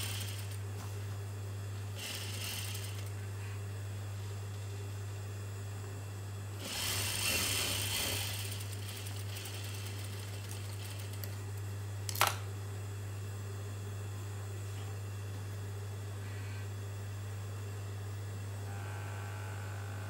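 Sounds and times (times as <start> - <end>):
steady low hum: 0.0 - 20.0
sewing machine stitching fabric: 2.0 - 3.1, 6.6 - 11.4.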